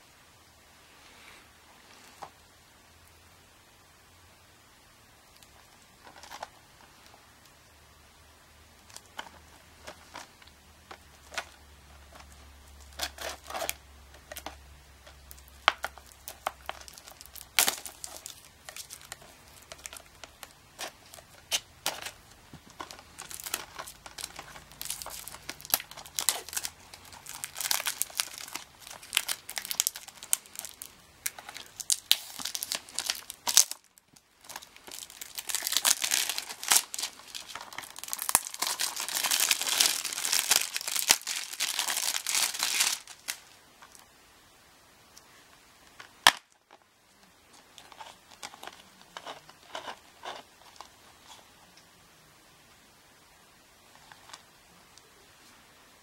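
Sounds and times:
plastic wrap crinkling and tearing: 8.8s - 44.1s, 45.9s - 46.8s, 47.5s - 51.4s.

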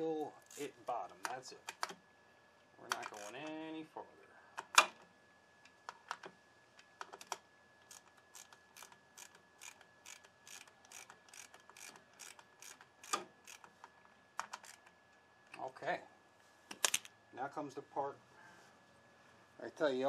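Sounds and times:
socket ratchet clicking: 2.9s - 3.6s, 7.0s - 13.7s, 14.4s - 15.0s.

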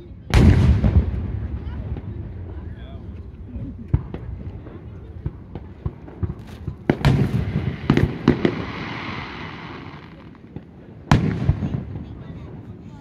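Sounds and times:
fireworks booming: 0.2s - 13.0s
fireworks hiss: 6.4s - 10.5s.

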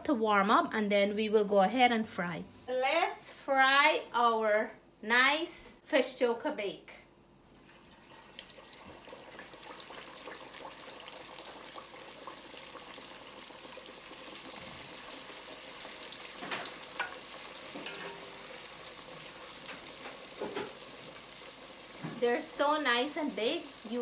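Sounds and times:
pastry deep-frying in oil: 7.6s - 24.0s.

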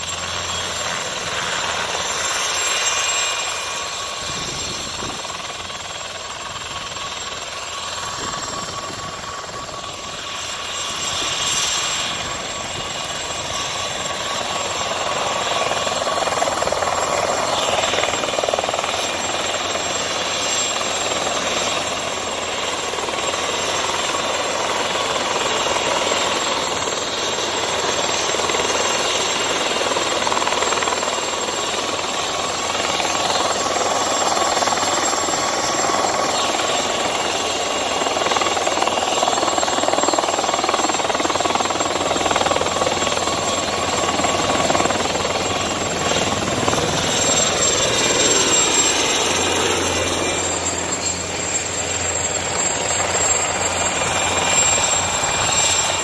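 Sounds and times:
helicopter rotor noise: 0.0s - 56.0s
helicopter turbine whine: 0.0s - 56.0s.

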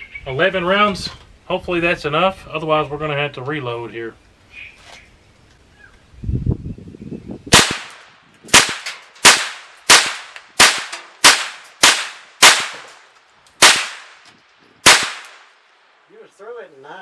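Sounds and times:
rifle shots with echo: 7.5s - 14.2s, 14.8s - 15.6s.

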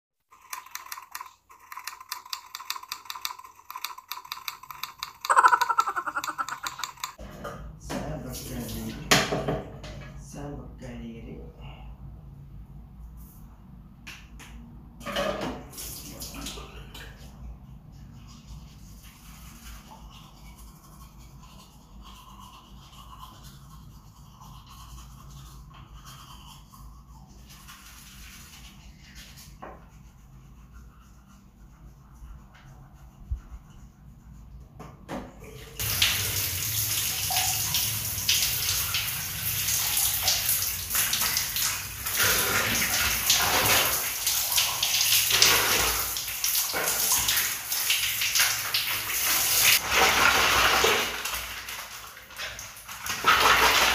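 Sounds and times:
toothbrush scrubbing teeth: 0.3s - 7.2s, 17.3s - 34.8s
shower water spraying: 35.8s - 53.9s.

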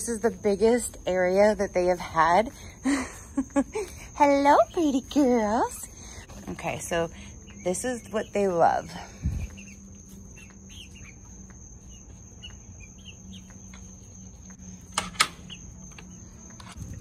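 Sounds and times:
chicks peeping: 4.4s - 17.0s.

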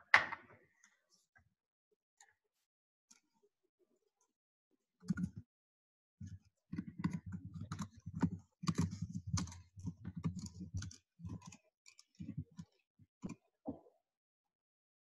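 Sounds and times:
computer keyboard typing: 6.8s - 12.5s.

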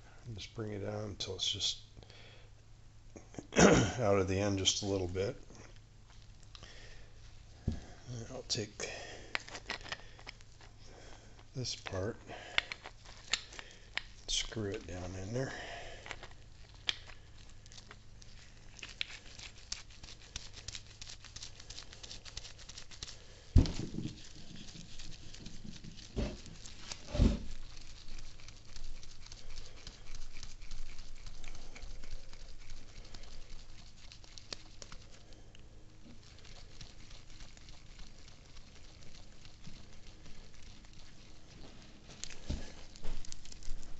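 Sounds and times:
metal parts clicking and rubbing: 9.3s - 10.8s.

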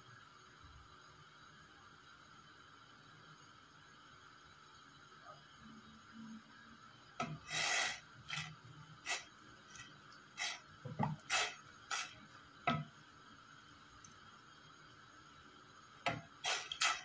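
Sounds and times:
spoon stirring water: 7.2s - 13.0s, 16.1s - 17.0s.

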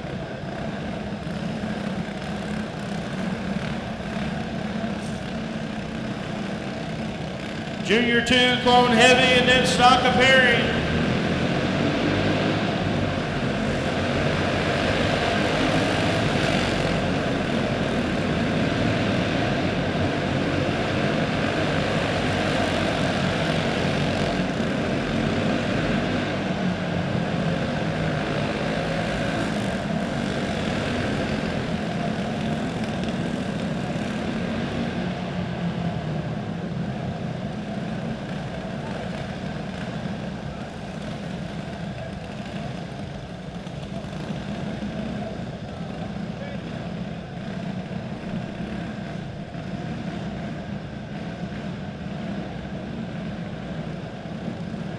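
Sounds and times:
small race car engines buzzing: 0.0s - 54.9s.

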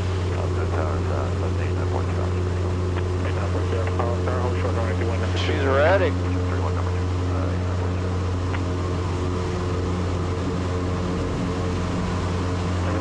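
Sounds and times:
airplane engine and propeller drone: 0.0s - 13.0s.

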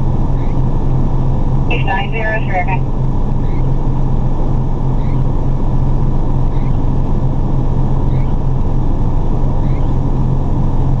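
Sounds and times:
fire engine idling: 1.7s - 2.8s.

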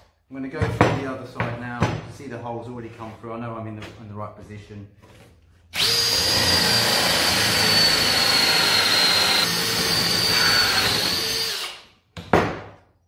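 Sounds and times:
drill with hole saw cutting wood: 5.7s - 11.9s.

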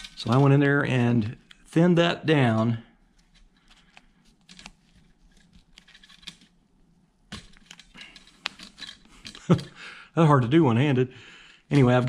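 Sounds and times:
faint clicks and rustles of hands: 2.4s - 10.0s.

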